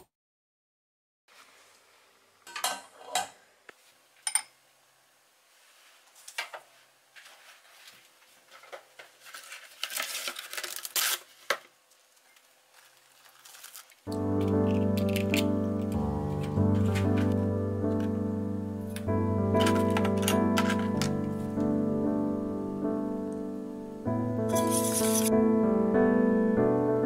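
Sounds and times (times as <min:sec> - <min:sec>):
cling film crinkling: 0:07.2 - 0:17.4.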